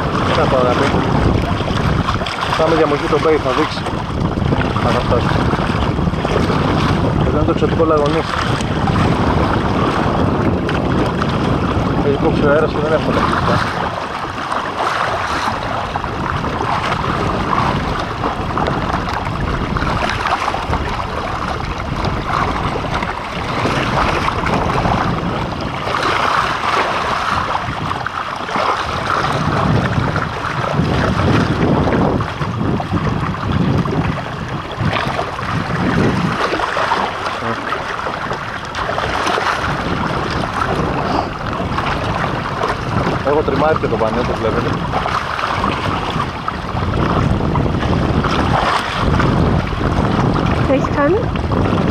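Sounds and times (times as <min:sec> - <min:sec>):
water rushing along a hull: 0:00.0 - 0:51.9
wind buffeting microphone: 0:00.0 - 0:51.9.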